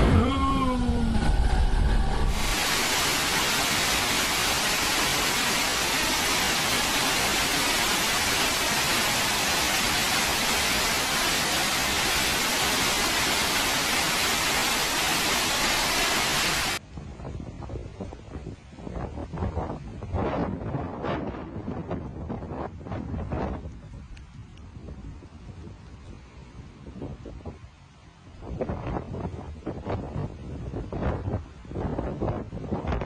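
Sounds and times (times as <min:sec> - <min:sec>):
water rushing down stairs: 0:02.3 - 0:16.8.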